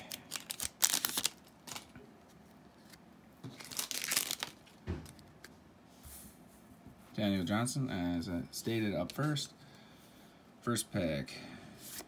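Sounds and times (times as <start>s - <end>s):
foil wrapper crinkling: 0.0s - 1.9s, 3.5s - 4.8s.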